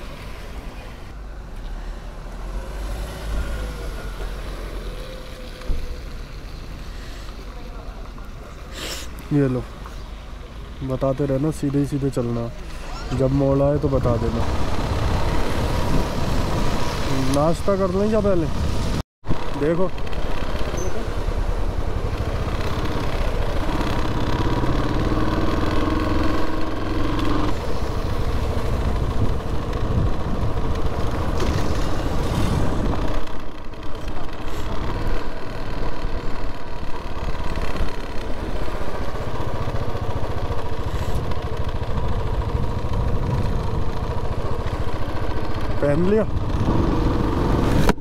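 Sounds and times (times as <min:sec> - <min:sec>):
road and wind noise: 0:00.0 - 0:48.0
motorcycle engine running: 0:19.3 - 0:48.0.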